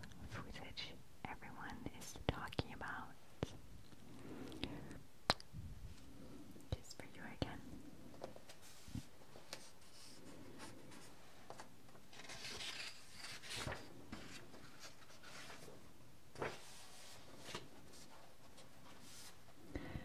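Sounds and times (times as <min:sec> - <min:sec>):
book pages rustling: 0:08.1 - 0:19.6.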